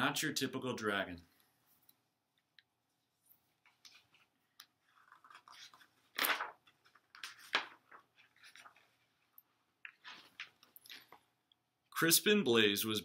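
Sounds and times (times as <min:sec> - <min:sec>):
page turning swishes: 0:03.6 - 0:11.2
paper rustling and crackling: 0:03.6 - 0:11.2.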